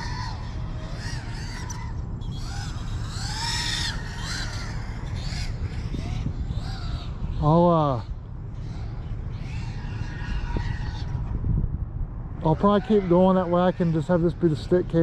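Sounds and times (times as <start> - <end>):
crows cawing: 0.0 - 11.3
low wind rumble: 0.0 - 15.0.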